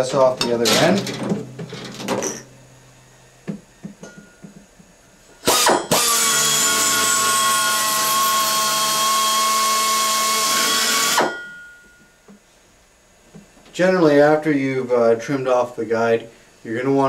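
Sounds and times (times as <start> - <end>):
pneumatic drill whine: 5.4 - 11.8.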